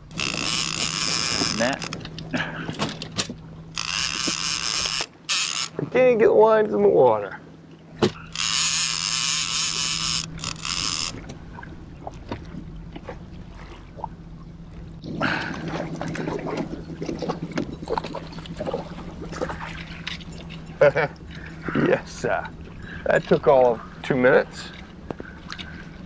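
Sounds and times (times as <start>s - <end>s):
fishing reel drag buzzing: 0.0s - 2.0s, 3.7s - 6.0s, 8.1s - 11.2s
boat motor humming: 0.0s - 26.0s.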